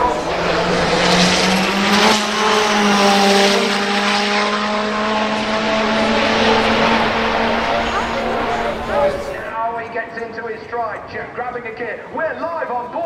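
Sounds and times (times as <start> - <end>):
car engine accelerating hard: 0.0 - 9.5.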